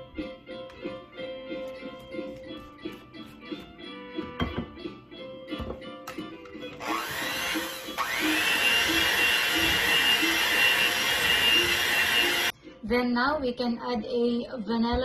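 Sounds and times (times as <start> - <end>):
background music: 0.0 - 15.0
electric hand mixer whining: 6.8 - 12.5.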